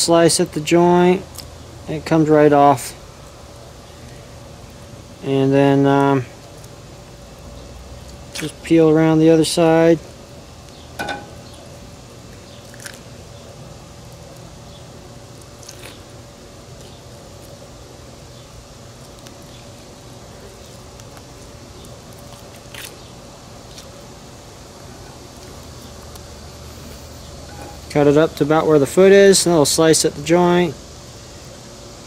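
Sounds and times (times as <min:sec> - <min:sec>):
low steady hum: 0:00.0 - 0:32.0
frog legs being skinned: 0:08.1 - 0:08.7, 0:12.6 - 0:13.2, 0:15.4 - 0:16.1, 0:20.6 - 0:23.0.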